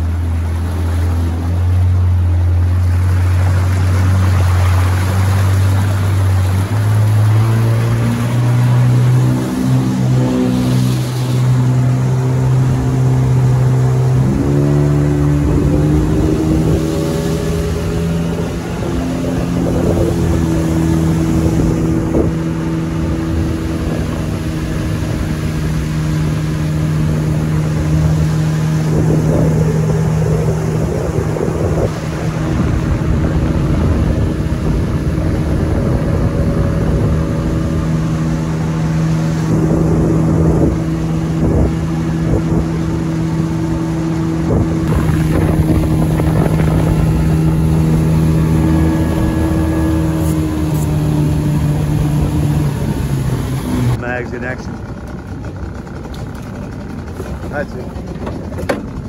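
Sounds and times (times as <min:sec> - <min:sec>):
boat motor running: 0:00.0 - 0:59.0.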